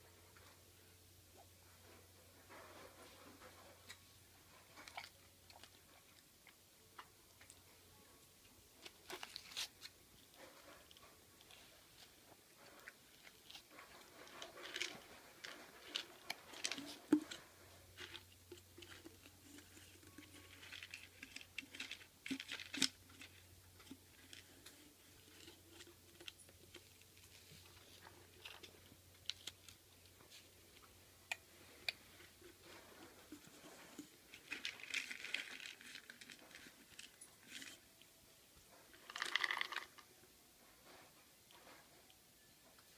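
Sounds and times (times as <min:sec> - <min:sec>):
child chewing: 0:02.8 - 0:07.7, 0:08.4 - 0:38.1
hand rummaging in plastic cup: 0:12.9 - 0:17.4, 0:18.0 - 0:28.7, 0:31.8 - 0:37.8, 0:38.9 - 0:40.0.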